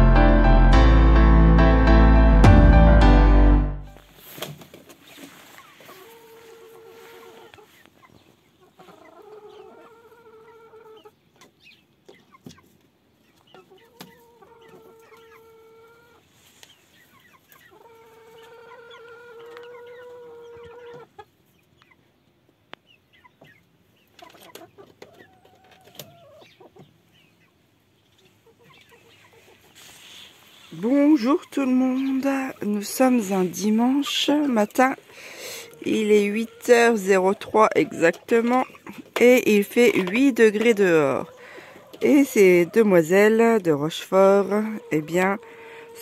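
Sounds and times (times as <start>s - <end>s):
hens calling: 28.2s - 46.0s.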